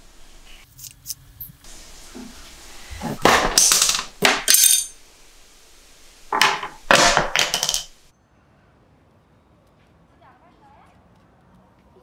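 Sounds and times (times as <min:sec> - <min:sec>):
small hard objects clattering: 0:01.7 - 0:08.1.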